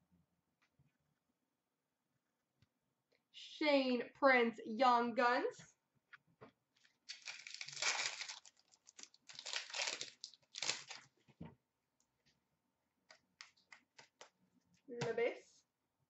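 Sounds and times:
wrapper tearing and crinkling: 6.8s - 11.1s.

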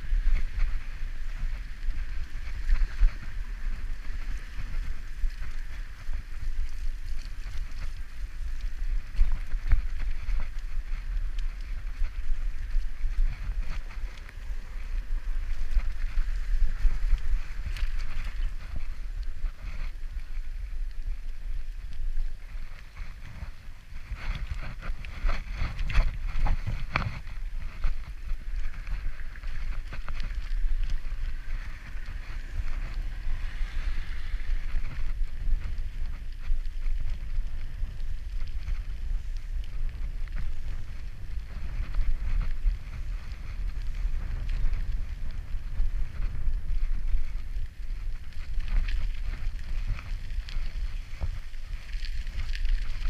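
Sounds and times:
bicycle tyres on dirt path: 0.0s - 53.0s
wind rumble on microphone: 0.0s - 53.0s
tyres hissing on wet road: 31.3s - 34.8s.

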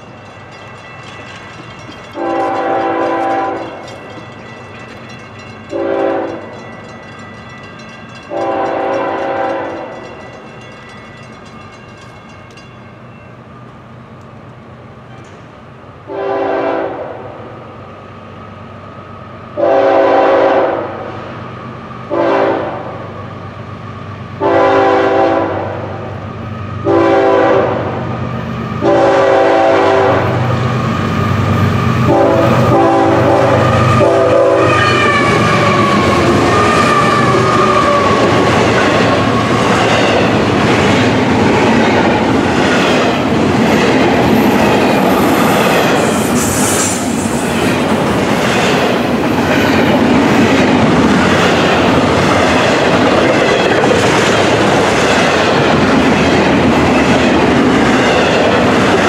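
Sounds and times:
locomotive air horn blasts: 2.2s - 3.8s, 5.7s - 6.4s, 8.3s - 9.9s, 16.1s - 17.2s, 19.6s - 21.0s, 22.1s - 22.9s, 24.4s - 25.8s, 26.8s - 28.0s, 28.8s - 30.4s, 32.1s - 35.7s.

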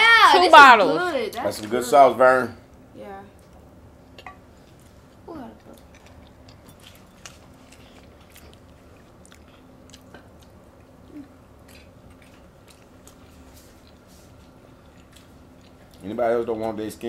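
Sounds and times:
people chewing and biting: 4.6s - 16.8s.

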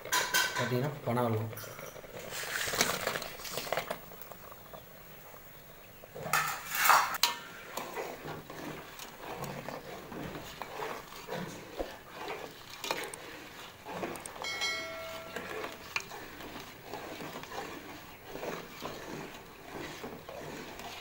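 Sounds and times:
ladle scraping and clinking pot: 0.0s - 4.8s, 6.1s - 21.0s
electronic chime: 14.4s - 15.5s.

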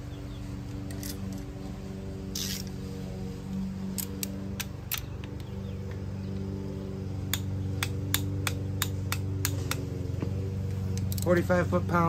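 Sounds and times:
torque wrench clicking: 10.9s - 11.5s.

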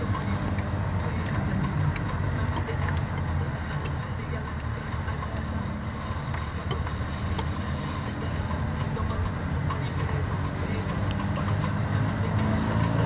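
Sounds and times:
car driving slowly: 0.0s - 13.0s.

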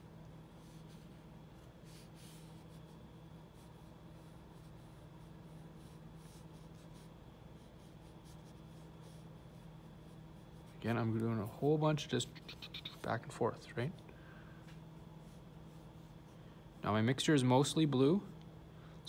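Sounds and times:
low electrical hum: 0.0s - 19.0s
paintbrush strokes scratching: 0.6s - 11.6s.

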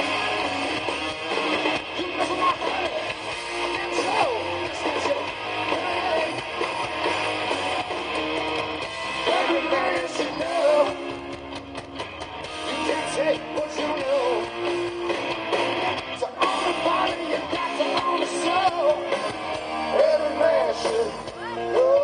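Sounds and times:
electric guitars: 0.0s - 22.0s
live rock band: 0.0s - 22.0s.

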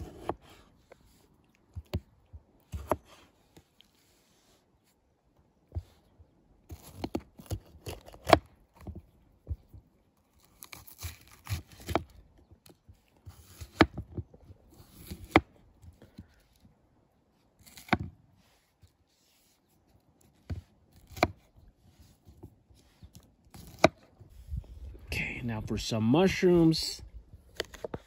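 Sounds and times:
knife slicing vegetables: 10.5s - 12.1s, 17.6s - 18.0s, 20.9s - 21.5s, 23.5s - 24.0s.

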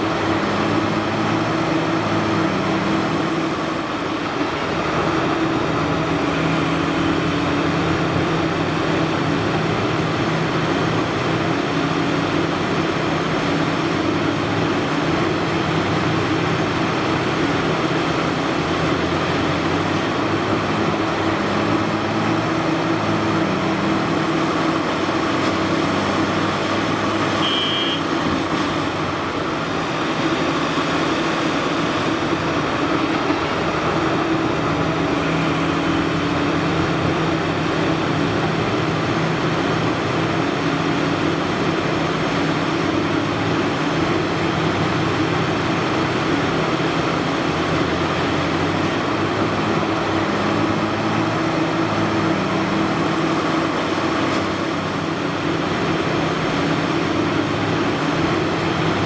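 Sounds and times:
excavator engine and hydraulics: 0.0s - 59.0s
short high beep: 27.4s - 28.1s.

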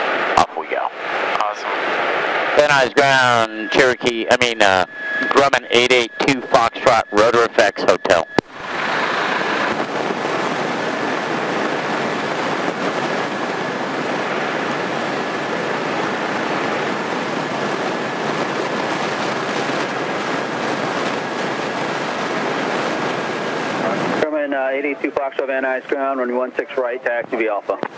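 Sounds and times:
faint high whine: 0.0s - 27.9s
aircraft engine idling: 2.6s - 24.2s.

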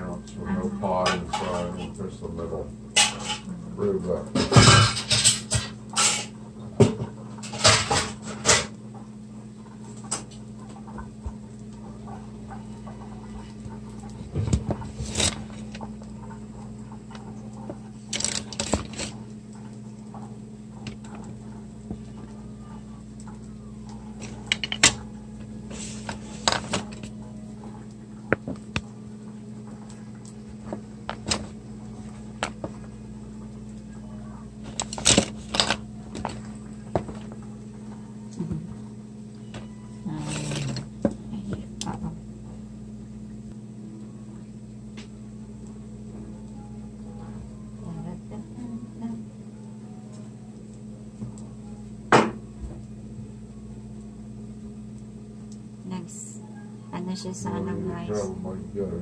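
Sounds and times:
steady low hum: 0.0s - 59.0s
dishes and pans clattering: 1.0s - 2.0s, 2.9s - 3.5s, 4.4s - 8.7s.

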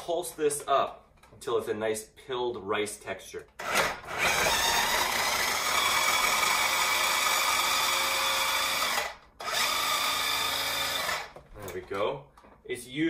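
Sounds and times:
food processor motor running: 3.6s - 11.3s.

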